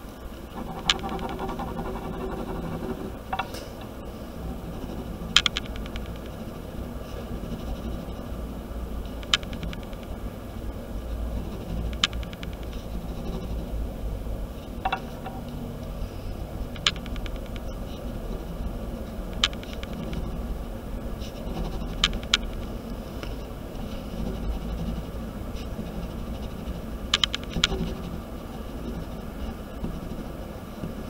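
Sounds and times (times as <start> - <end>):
steady low hum: 0.0 - 31.0
pen scribbling on paper: 0.6 - 3.2
sharp clicks: 0.7 - 2.8, 5.4 - 6.3, 9.1 - 10.2, 11.8 - 12.8, 16.8 - 17.7, 19.4 - 20.2, 27.1 - 27.8.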